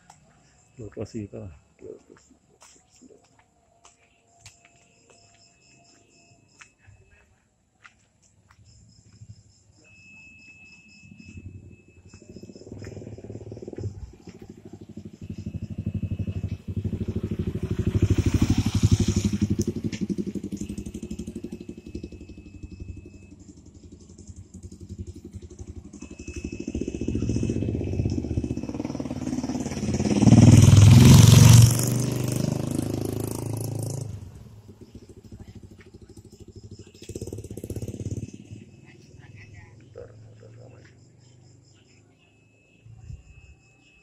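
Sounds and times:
crickets trilling: 0.0s - 44.0s
motorcycles passing: 11.1s - 42.2s.

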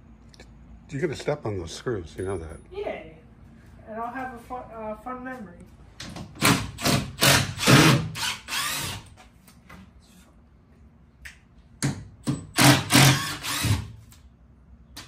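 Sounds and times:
cordless drill whirring: 6.8s - 9.1s, 12.6s - 13.9s.

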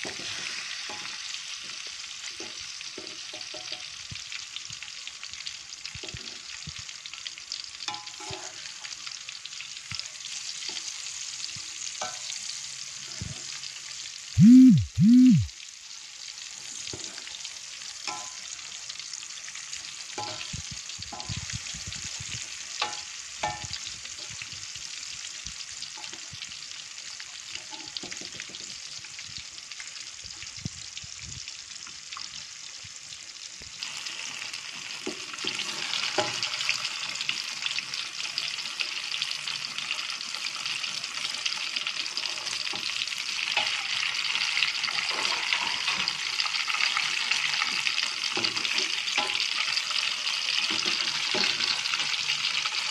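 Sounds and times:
food deep-frying in oil: 0.0s - 52.9s
metal spatula knocking pan: 3.0s - 3.9s.

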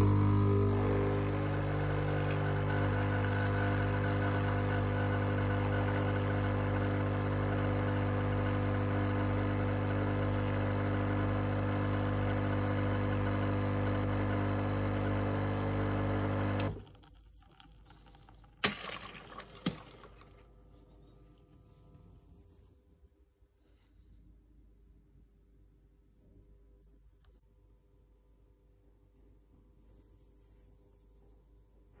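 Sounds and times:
espresso machine pump humming: 0.0s - 18.2s.

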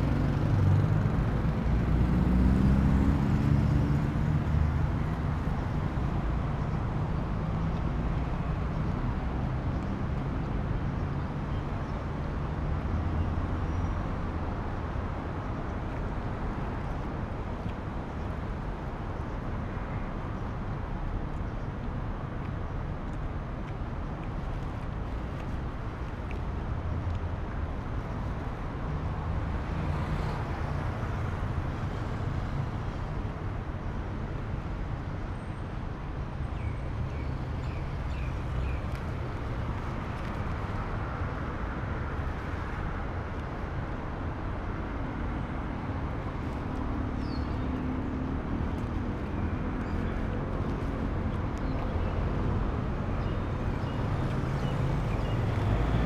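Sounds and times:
road traffic rumble: 0.0s - 56.0s.

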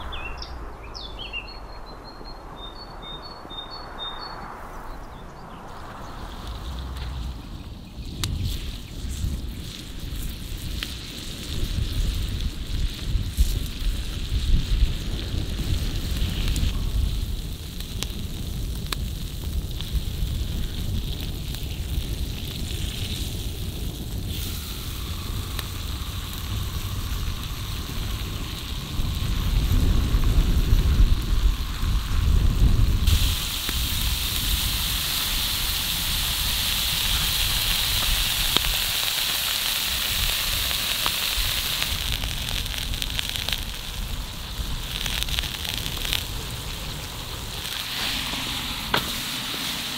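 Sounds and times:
low rumble: 0.0s - 9.5s
crackling wood fire: 5.5s - 49.9s
steak sizzling on a griddle: 8.3s - 49.9s.

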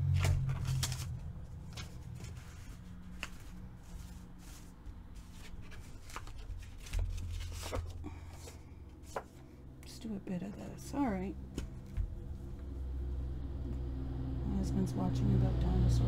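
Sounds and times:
paper rustling and scuffing: 0.0s - 9.5s
low steady hum: 0.0s - 16.0s.

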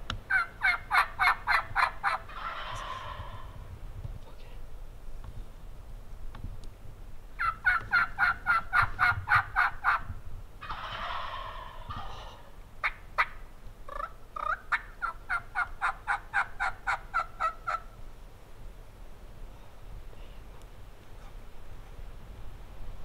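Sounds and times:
turkey gobble: 0.3s - 3.6s, 7.4s - 18.0s
turkey yelps: 0.3s - 3.6s, 7.4s - 10.0s, 10.6s - 17.9s.

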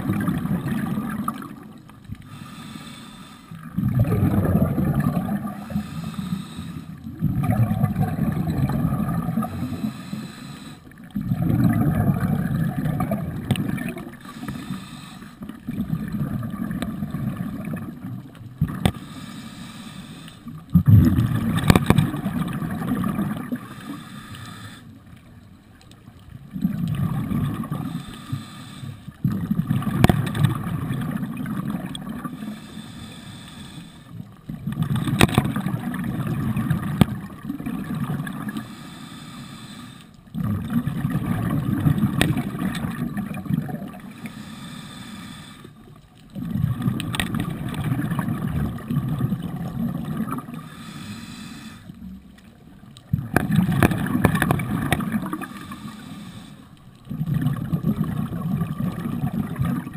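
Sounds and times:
underwater bubbles gurgling: 0.0s - 59.9s
diver breathing through regulator: 2.2s - 4.4s, 5.4s - 7.1s, 9.4s - 11.1s, 14.1s - 15.6s, 18.7s - 20.7s, 23.4s - 25.0s, 27.6s - 29.2s, 32.2s - 34.3s, 38.4s - 40.2s, 44.0s - 45.9s, 50.4s - 52.2s, 55.3s - 57.0s.

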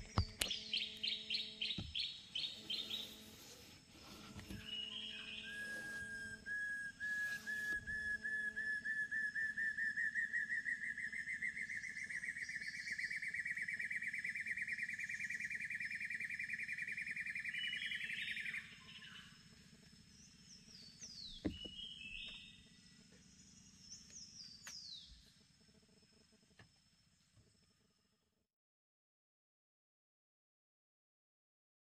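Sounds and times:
bird calls with falling whistles: 4.4s - 19.4s.

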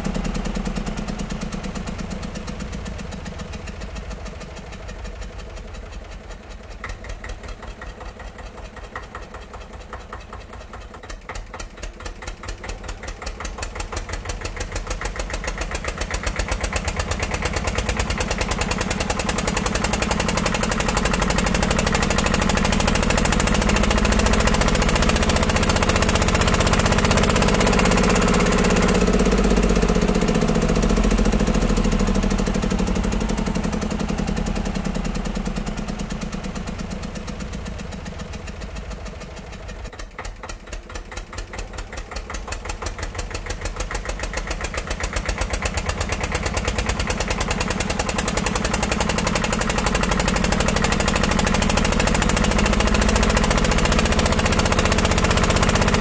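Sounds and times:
motor running with rapid knocking: 10.7s - 39.1s, 39.7s - 56.0s.

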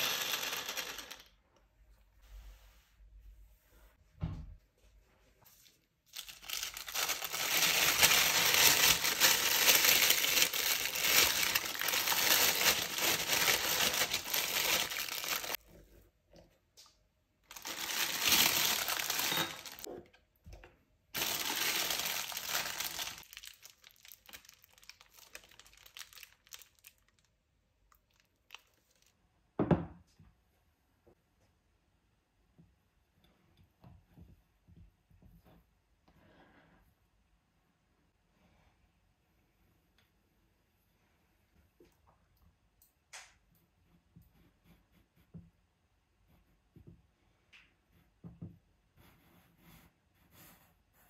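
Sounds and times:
plastic piping bag crinkling: 6.1s - 15.6s, 17.4s - 19.9s, 21.2s - 29.2s.

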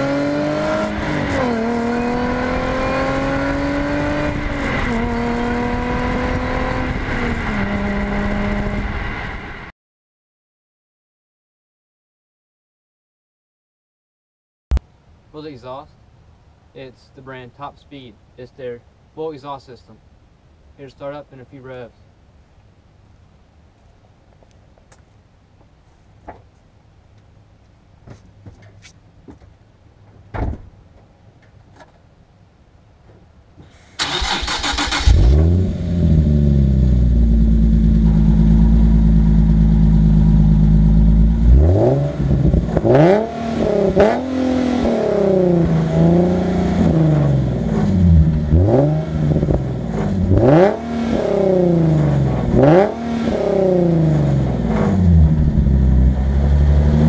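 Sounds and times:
car engine idling and revving: 0.0s - 9.7s, 34.0s - 57.0s
thump: 30.3s - 30.7s.

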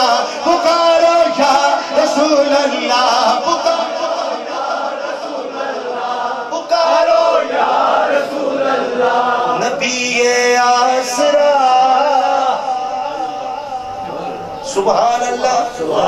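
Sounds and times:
man singing into a microphone: 0.0s - 4.5s, 9.5s - 16.0s.

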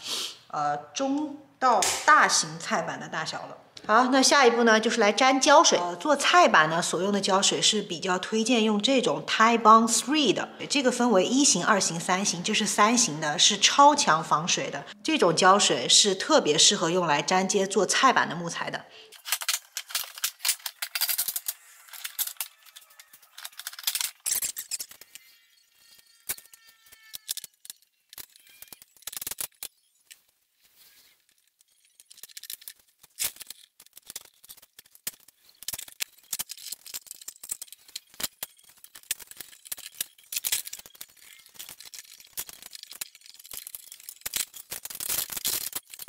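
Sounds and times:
wooden strips and clamps clicking: 19.2s - 30.2s, 31.2s - 46.0s.

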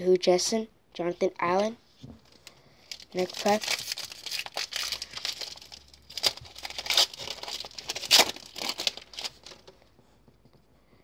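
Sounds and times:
foil wrapper tearing and crinkling: 2.9s - 9.7s.

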